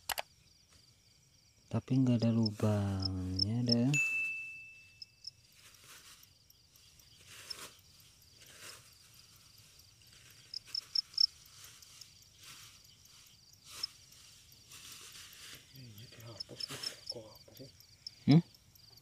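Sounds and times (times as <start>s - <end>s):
crickets chirping: 0.0s - 19.0s
loud close cricket chirps: 0.0s - 19.0s
grass rustling: 1.8s - 17.4s.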